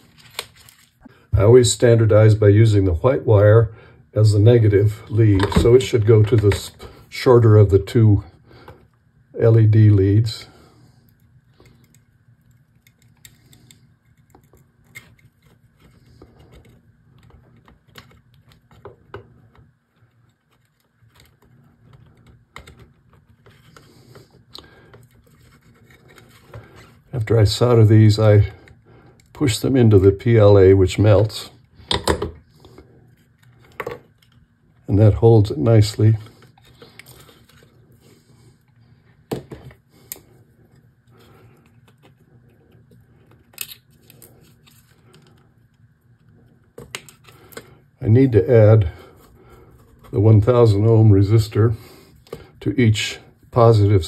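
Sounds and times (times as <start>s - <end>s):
faint low hum: 0.0s - 54.0s
hands handling plastic clicks: 11.1s - 23.9s.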